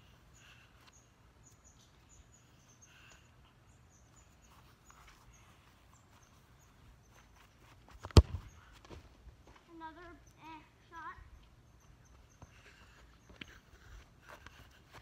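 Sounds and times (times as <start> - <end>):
foot kicking a soccer ball: 7.8 - 9.6.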